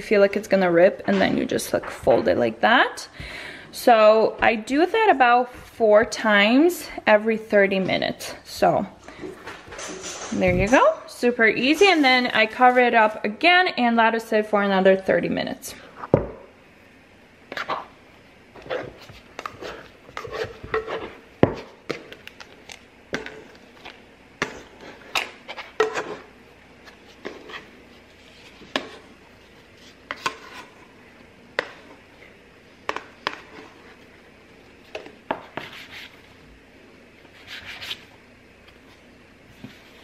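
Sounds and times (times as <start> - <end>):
dough scraper scraping metal bowl: 18.6 - 21.2
scraper cutting dough on countertop: 18.6 - 22.5, 23.2 - 30.9, 32.9 - 34.1, 34.9 - 36.3, 37.3 - 38.1.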